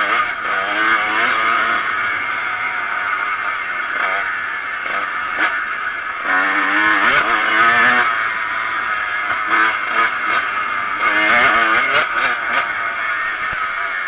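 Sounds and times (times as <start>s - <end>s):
motocross bike engine revving: 0.0s - 14.0s.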